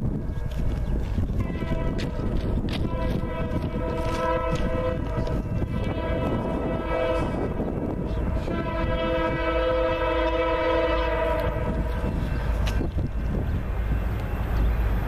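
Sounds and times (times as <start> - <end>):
locomotive air horn blasts: 1.4 - 7.6, 8.3 - 11.9.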